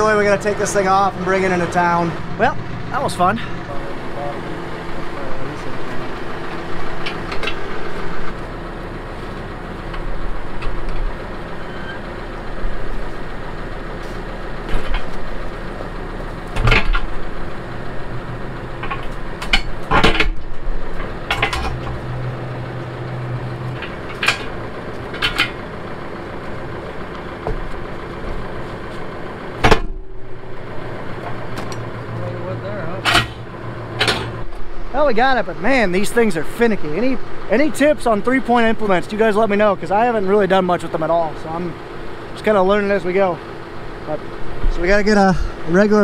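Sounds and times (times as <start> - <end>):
tractor engine idling: 0.0 - 46.0
sharp metal clanks: 32.9 - 34.4.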